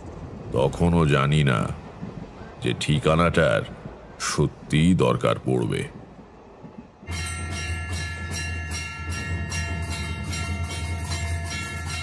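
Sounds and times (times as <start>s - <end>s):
train rumble and clatter: 0.0s - 12.0s
high ringing tones: 7.0s - 12.0s.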